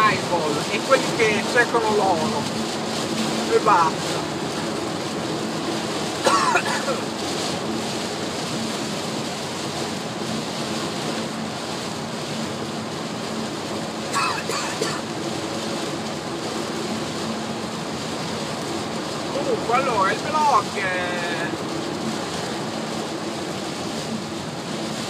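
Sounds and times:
heavy rain on car: 0.0s - 25.0s
low engine hum: 0.0s - 25.0s.

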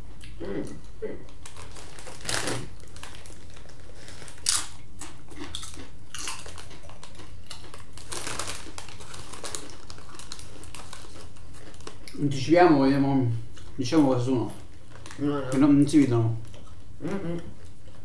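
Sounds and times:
chips being chewed: 1.2s - 12.3s, 14.5s - 18.0s
foil chip bag crinkling: 1.3s - 12.5s, 13.6s - 16.6s.

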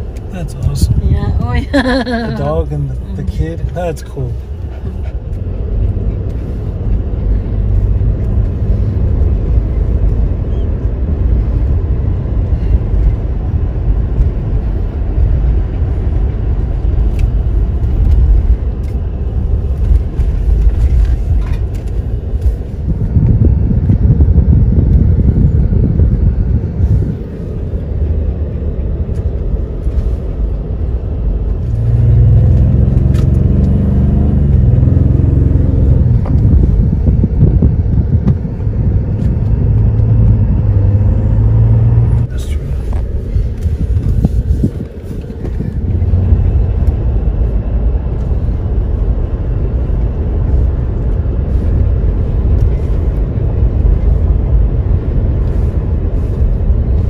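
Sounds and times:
vehicle road noise from inside: 0.0s - 57.0s.

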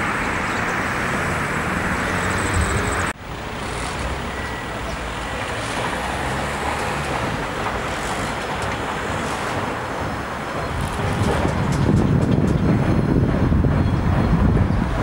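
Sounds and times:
road traffic noise: 0.0s - 15.0s
wind buffeting microphone: 7.0s - 15.0s.

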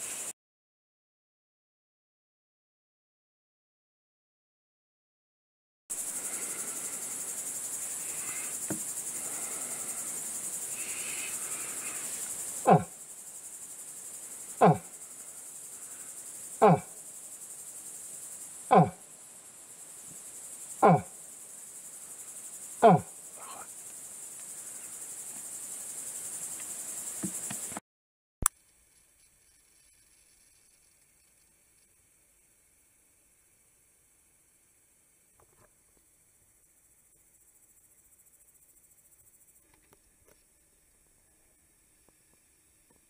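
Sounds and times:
crickets chirring: 0.0s - 0.3s, 5.9s - 27.8s, 28.5s - 43.0s
short cries falling in pitch: 12.6s - 13.0s, 14.6s - 14.9s, 18.7s - 19.0s, 20.8s - 21.2s, 22.8s - 23.7s.

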